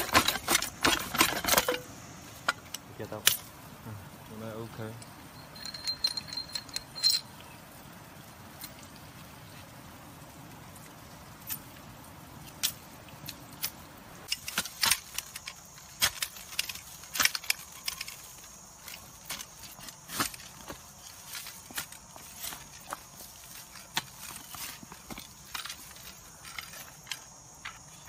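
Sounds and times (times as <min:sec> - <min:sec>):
metallic clicks and clinks: 0:00.0 - 0:03.5, 0:04.8 - 0:07.6, 0:12.5 - 0:23.0.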